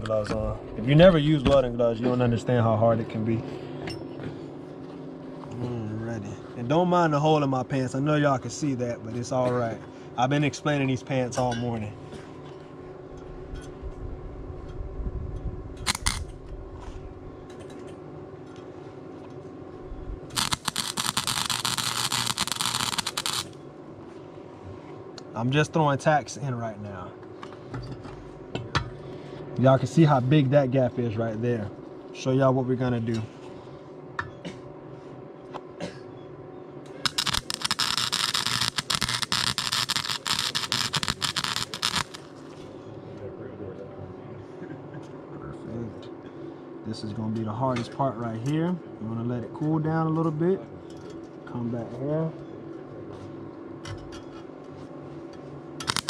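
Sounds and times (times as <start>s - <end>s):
welder arc crackling: 15.8s - 16.3s, 20.3s - 23.6s, 37.0s - 42.4s.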